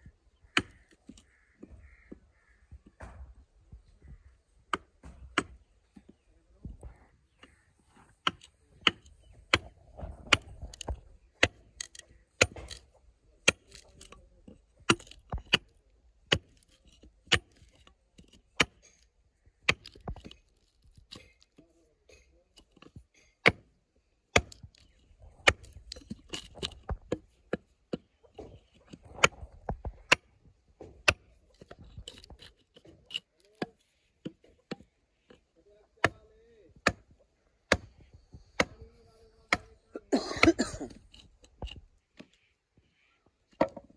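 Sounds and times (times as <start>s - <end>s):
sharp irregular knocks: 13.4s - 19.0s, 24.3s - 36.2s, 36.8s - 38.9s.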